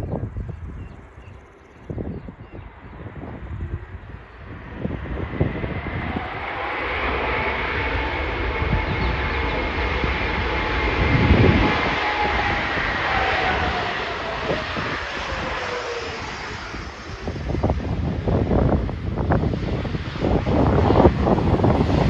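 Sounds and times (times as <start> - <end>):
jet engine roar and whine: 0.0 - 22.0
wind buffeting microphone: 0.0 - 22.0.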